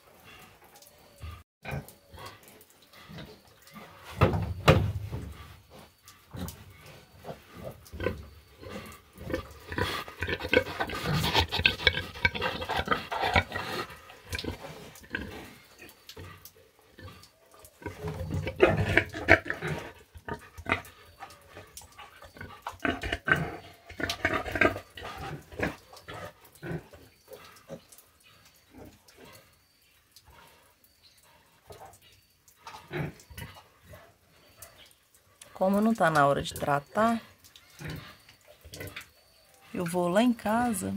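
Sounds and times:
pigs grunting: 5.1s - 28.0s, 32.6s - 34.2s.

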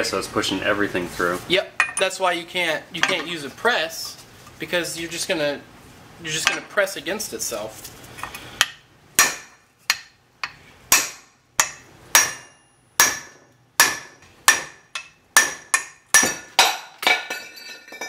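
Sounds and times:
hammer striking steel: 8.6s - 18.0s.

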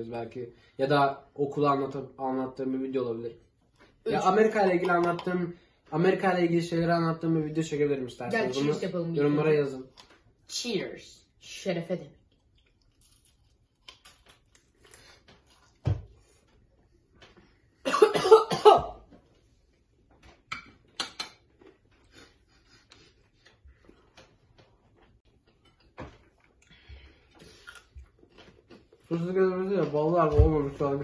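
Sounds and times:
faint chewing: 12.1s - 17.8s, 19.2s - 30.0s
boy coughing and spluttering: 17.8s - 19.0s.

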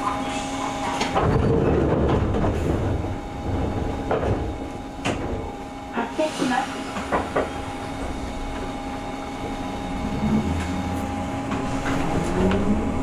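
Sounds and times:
train running hum: 0.0s - 13.0s
traction motor whine: 6.9s - 13.0s.

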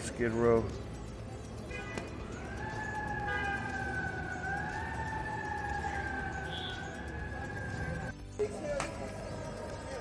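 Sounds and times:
low street noise: 0.0s - 10.0s
emergency vehicle siren: 2.0s - 8.1s.

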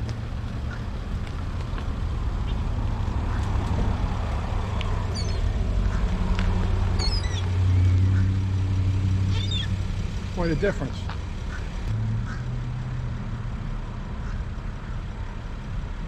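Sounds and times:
seagulls calling: 5.0s - 6.2s, 7.0s - 8.5s, 9.3s - 9.8s, 11.0s - 12.5s.

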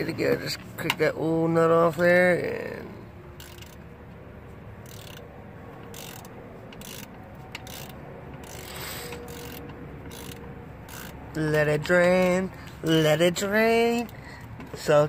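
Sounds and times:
ratchet wrench clicking: 3.4s - 3.9s, 4.8s - 14.9s.

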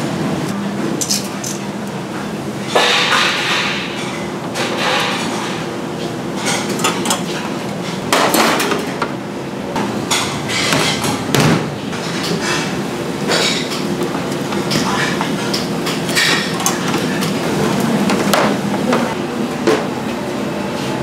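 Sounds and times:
kitchen background noise: 0.2s - 21.0s
metal clanking on plate: 14.7s - 17.3s.

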